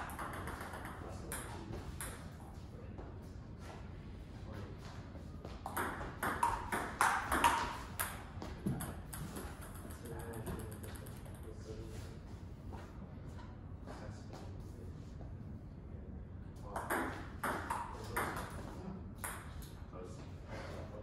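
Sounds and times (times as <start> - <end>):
table tennis ball hits: 0.0 - 2.3, 5.7 - 11.2, 16.8 - 19.6.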